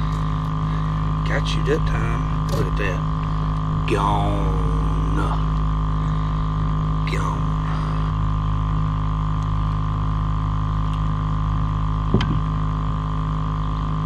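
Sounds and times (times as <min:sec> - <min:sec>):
machinery droning hum: 0:00.0 - 0:14.0
sharp knock: 0:12.1 - 0:12.4.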